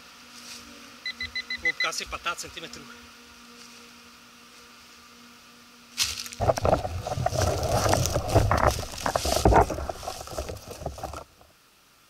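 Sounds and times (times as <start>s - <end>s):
faint steady hum: 0.0s - 12.0s
rustling and knocking in leaf litter: 5.9s - 11.5s.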